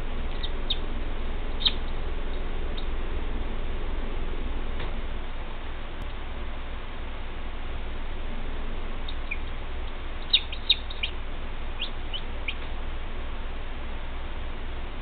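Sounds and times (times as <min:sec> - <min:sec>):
steady low hum: 0:00.0 - 0:15.0
chicks peeping: 0:00.3 - 0:00.8, 0:01.6 - 0:02.9, 0:09.1 - 0:09.5, 0:10.2 - 0:11.2, 0:11.8 - 0:12.6.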